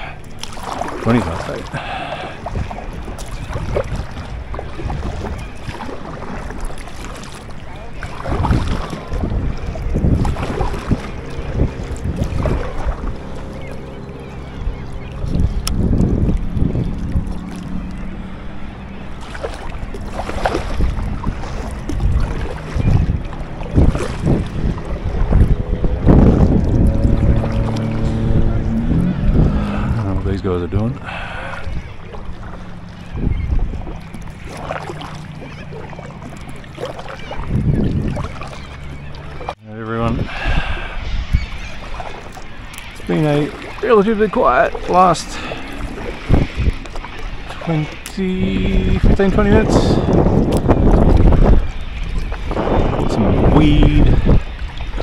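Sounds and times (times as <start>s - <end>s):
low hum: 0.0s - 55.0s
water lapping against kayak hull: 0.0s - 55.0s
wind buffeting microphone: 0.0s - 55.0s
paddle swishes: 31.1s - 39.6s.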